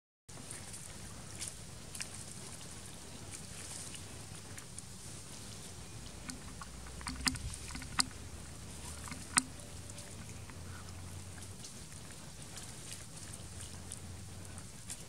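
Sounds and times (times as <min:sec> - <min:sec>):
low steady rumble: 0:00.3 - 0:15.0
sharp clicks: 0:06.2 - 0:08.2, 0:08.9 - 0:09.6.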